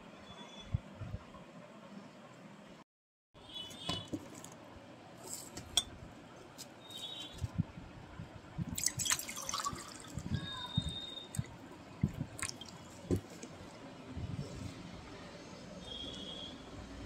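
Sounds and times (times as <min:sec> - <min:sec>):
water pouring into metal tumbler: 0:08.8 - 0:10.3.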